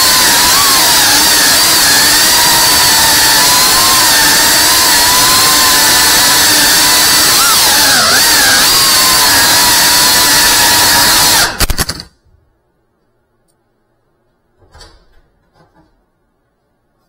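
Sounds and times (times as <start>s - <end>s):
drone motors whining: 0.0s - 12.1s.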